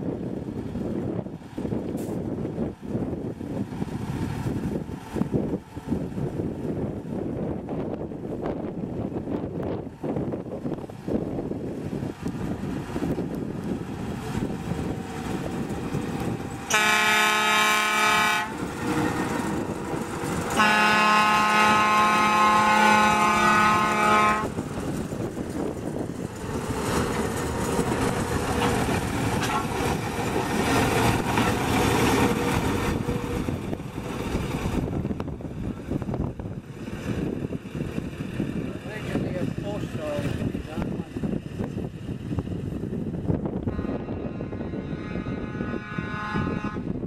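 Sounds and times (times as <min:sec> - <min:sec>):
railcar engine running: 0:00.0 - 0:47.0
wheels rumbling on rails: 0:00.0 - 0:47.0
railcar horn blasts: 0:16.7 - 0:18.6, 0:20.5 - 0:24.6, 0:43.7 - 0:47.0.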